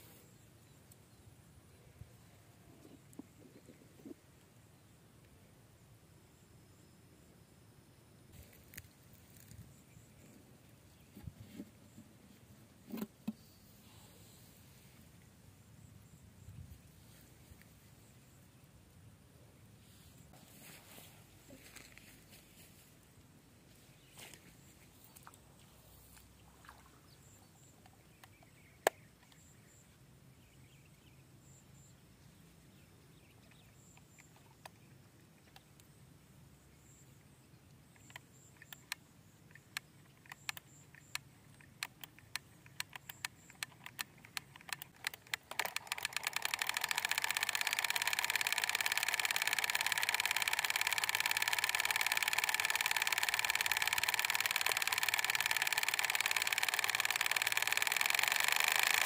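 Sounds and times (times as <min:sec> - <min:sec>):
small motor running with rattle: 0:08.4 - 0:10.1, 0:40.2 - 0:59.0
small mechanical clicks: 0:08.4 - 0:10.3, 0:37.9 - 0:59.0.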